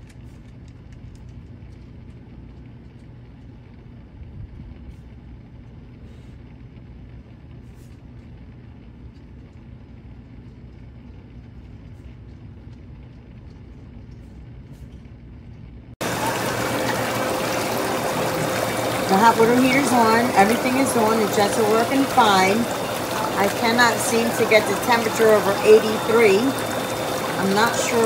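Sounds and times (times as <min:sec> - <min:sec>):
pump humming: 0:16.0 - 0:28.0
rushing water from spa jets: 0:16.0 - 0:28.0.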